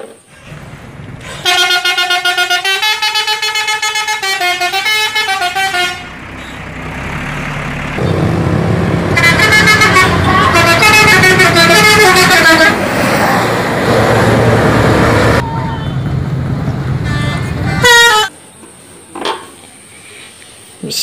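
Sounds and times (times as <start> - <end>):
bus engine running: 0.0 - 19.1
musical bus horn: 1.2 - 6.6, 9.1 - 12.9, 17.0 - 18.3.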